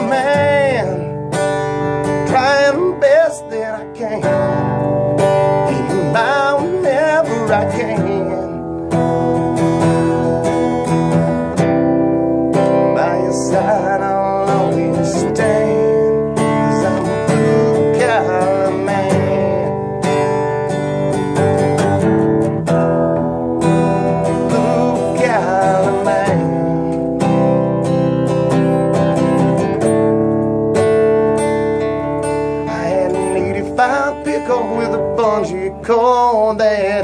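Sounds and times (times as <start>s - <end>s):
person singing: 0.0s - 9.4s, 12.6s - 20.4s, 23.8s - 27.8s, 32.4s - 37.0s
acoustic guitar strumming: 0.0s - 37.0s.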